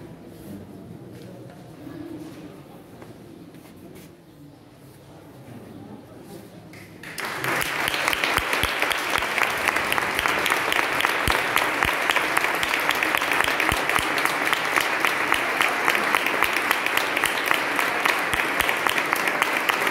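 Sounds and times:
audience applauding: 7.0s - 19.9s.

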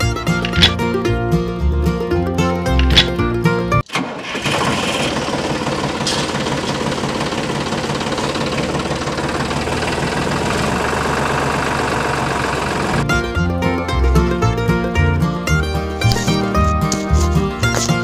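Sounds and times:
music: 0.0s - 3.8s, 13.0s - 18.0s.

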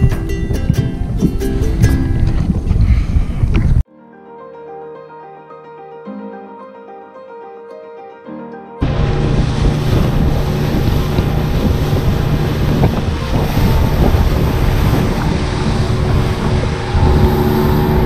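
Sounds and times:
wind buffeting microphone: 0.0s - 3.9s, 8.8s - 18.0s
boat engine drone: 8.8s - 18.0s.

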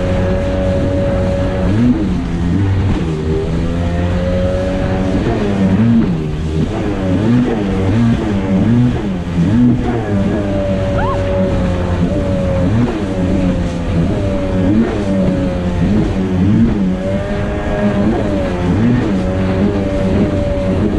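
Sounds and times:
jet ski engine running: 0.0s - 20.9s
water rushing and spraying: 4.6s - 20.9s.

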